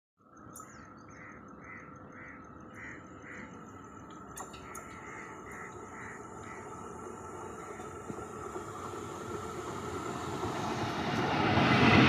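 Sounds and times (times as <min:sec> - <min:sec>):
bird calling: 0:00.5 - 0:09.5.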